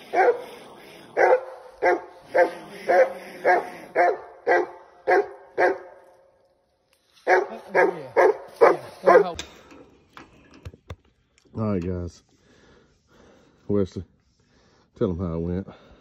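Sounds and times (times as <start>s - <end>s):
dog barking: 0.0s - 6.0s, 7.2s - 9.4s.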